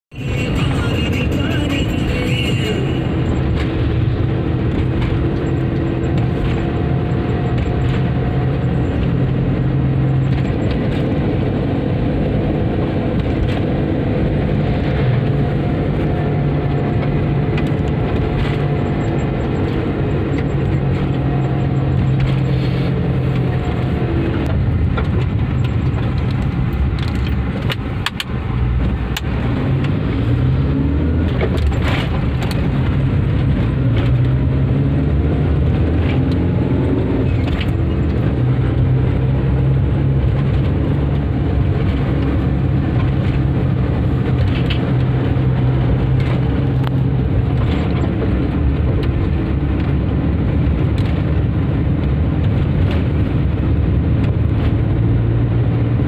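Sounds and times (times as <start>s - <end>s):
car engine and road drone: 0.0s - 56.0s
sharp clicks or rattles: 24.9s - 28.4s.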